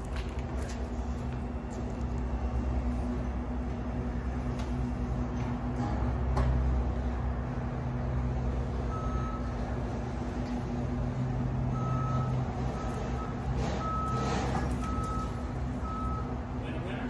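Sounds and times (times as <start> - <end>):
forklift running hum: 0.0 - 17.0
reversing alarm beeping: 8.9 - 10.1, 11.6 - 16.6.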